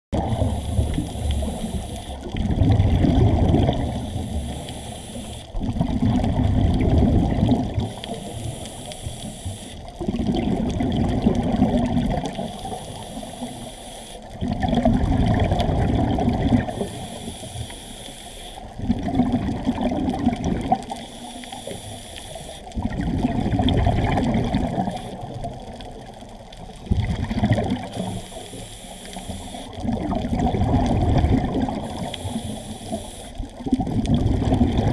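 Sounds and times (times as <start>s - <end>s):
diver breathing through regulator: 0.2s - 2.5s, 3.8s - 5.6s, 7.8s - 9.9s, 12.3s - 14.4s, 16.5s - 18.8s, 20.9s - 22.8s, 27.7s - 29.8s, 31.7s - 33.5s
exhaled bubbles underwater: 0.2s - 17.8s, 18.6s - 34.9s.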